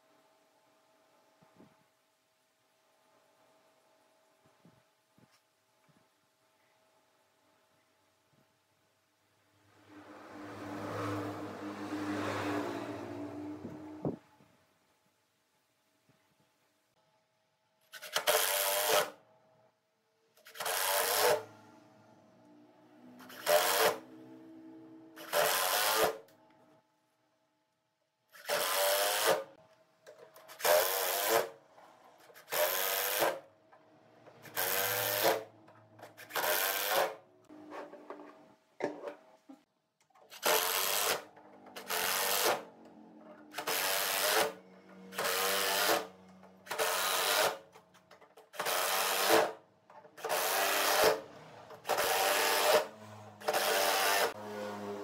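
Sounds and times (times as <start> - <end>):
impact driver driving screws: 17.9 - 19.2, 20.4 - 21.5, 23.2 - 24.1, 25.2 - 26.3, 28.4 - 29.5, 30.4 - 31.6, 32.3 - 33.4, 34.4 - 37.2, 40.3 - 42.7, 43.5 - 47.7, 48.4 - 49.6, 50.2 - 54.3.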